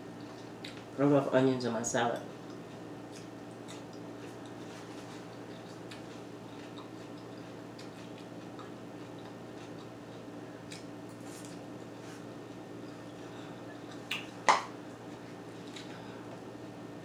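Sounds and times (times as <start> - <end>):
chewing crunches: 2.4 - 11.6.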